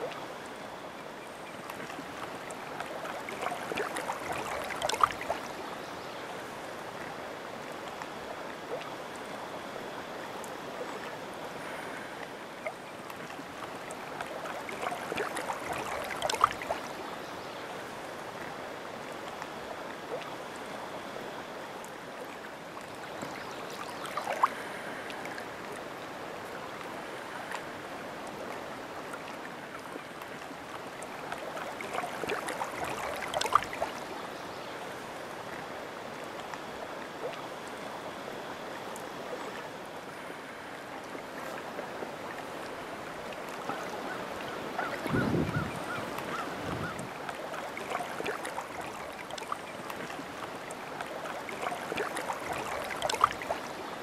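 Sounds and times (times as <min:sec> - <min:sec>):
lake water lapping on shore: 0:00.0 - 0:54.0
water splashing: 0:01.6 - 0:05.7, 0:10.6 - 0:17.0, 0:26.4 - 0:34.1, 0:39.2 - 0:54.0.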